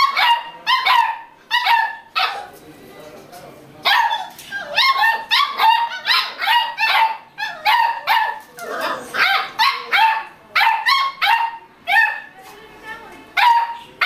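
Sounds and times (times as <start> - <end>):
puppy yelping barks: 3.9 - 12.3, 13.4 - 14.0.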